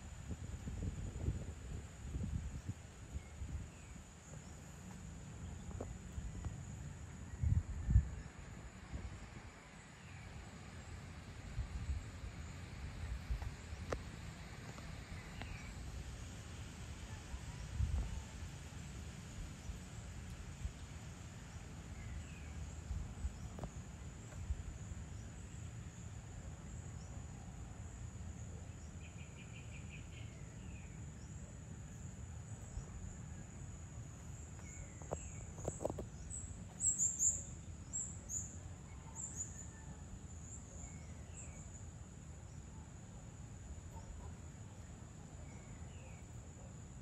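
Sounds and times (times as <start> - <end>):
bird chirps: 34.6 - 39.8.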